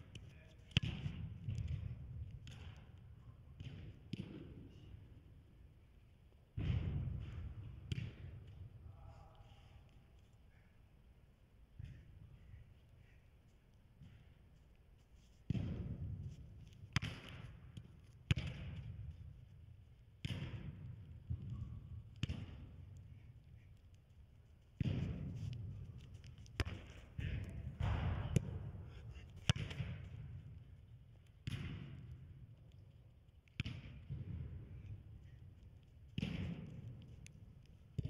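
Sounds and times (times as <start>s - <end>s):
football thuds on artificial turf: 6.6s - 8.4s, 15.5s - 16.3s, 16.9s - 18.9s, 24.8s - 25.7s
echo of large indoor hall: 20.0s - 32.6s.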